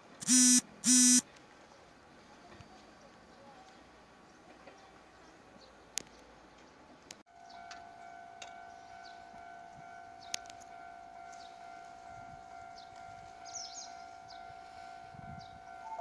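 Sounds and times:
electronic warning tone: 0:00.2 - 0:01.2
birds chirping: 0:12.7 - 0:14.6.

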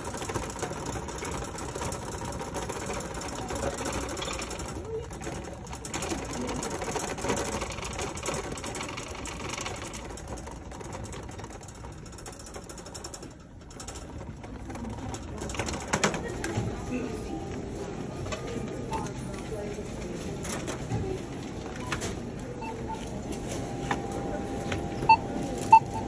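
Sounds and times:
shopping cart rattling on hard floor: 0:00.0 - 0:17.2.

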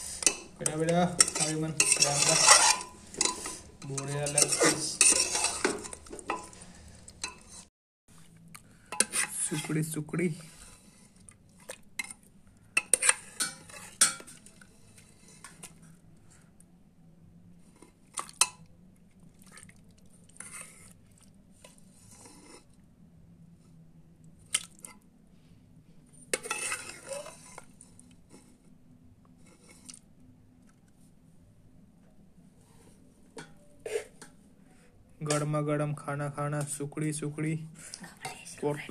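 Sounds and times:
metal ladle clinking and scraping pot: 0:00.0 - 0:06.6, 0:07.2 - 0:07.7, 0:08.9 - 0:09.8, 0:12.8 - 0:15.6, 0:26.3 - 0:27.7.

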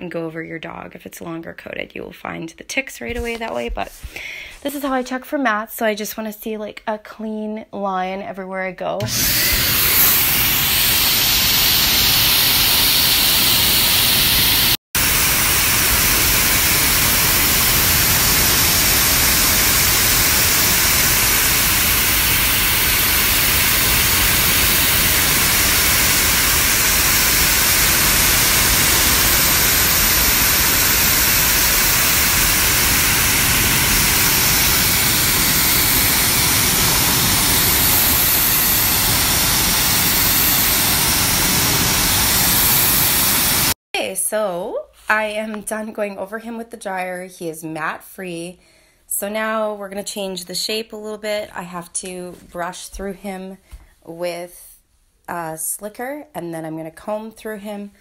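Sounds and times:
grooming blower running: 0:09.0 - 0:43.8.

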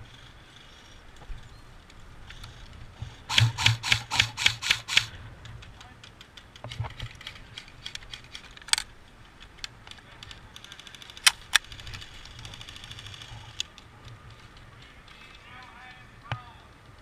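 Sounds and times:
airsoft gun clicks: 0:03.3 - 0:11.7.

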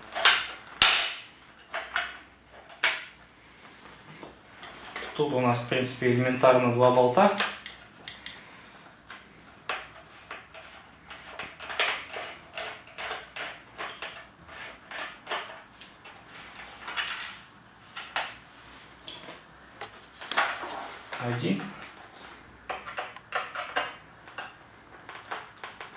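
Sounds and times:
screwdriver clicking and scraping: 0:09.7 - 0:16.2.

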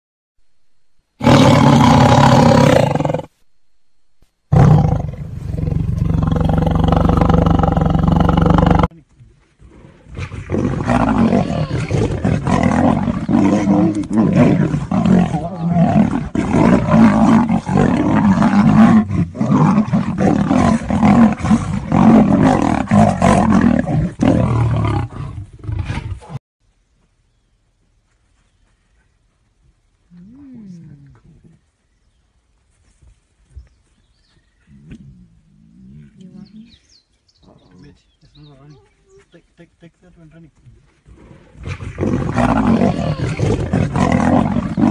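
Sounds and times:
big cats roaring: 0:01.2 - 0:03.3, 0:04.5 - 0:08.9, 0:09.6 - 0:26.4, 0:41.1 - 0:44.9
rough snarls: 0:01.2 - 0:03.4, 0:04.5 - 0:08.9, 0:09.6 - 0:26.4, 0:41.1 - 0:44.9.

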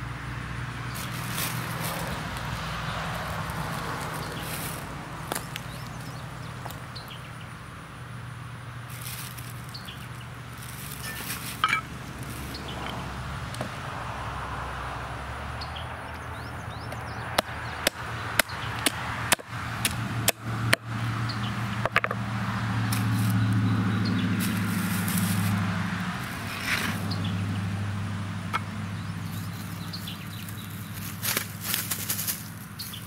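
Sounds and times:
hatchet chopping on wooden board: 0:16.9 - 0:20.9.

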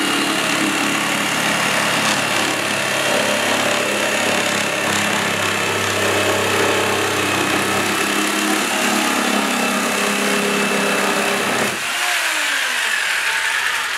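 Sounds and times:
jigsaw cutting wood: 0:00.0 - 0:13.9.

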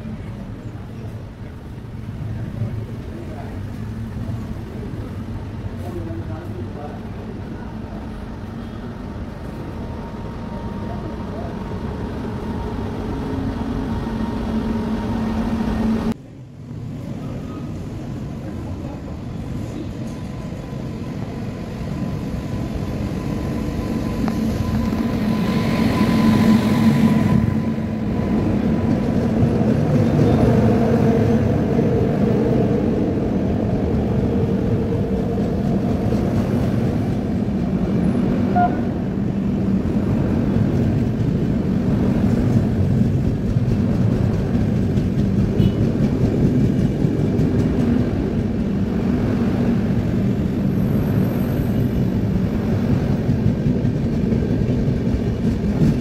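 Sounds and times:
electric locomotive passing: 0:00.0 - 0:56.0
train wheels rolling on rails: 0:17.0 - 0:56.0.

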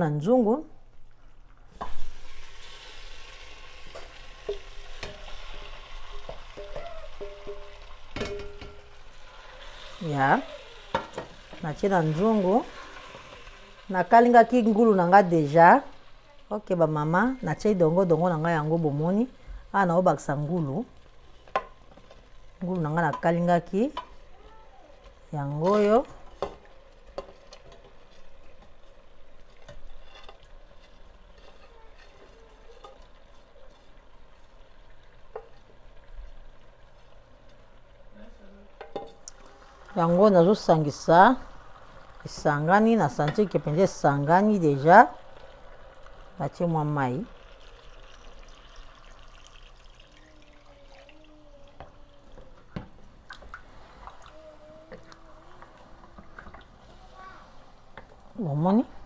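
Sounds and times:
pork sizzling in a pot: 0:00.8 - 0:59.0
spoon knocking on plate and pot: 0:06.2 - 0:08.9.

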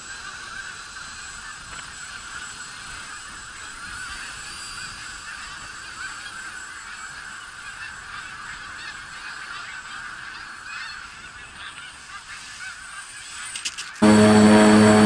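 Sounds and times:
geese honking: 0:14.0 - 0:15.0.

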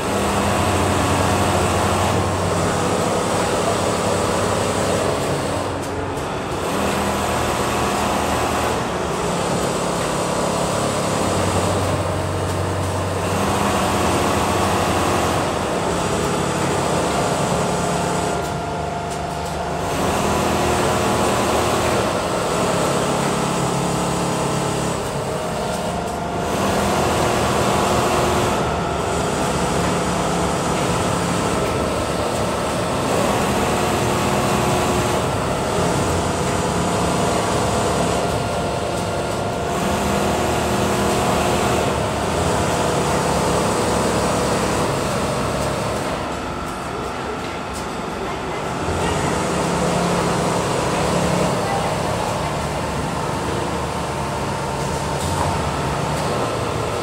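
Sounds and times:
sewing machines running: 0:00.0 - 0:57.0.

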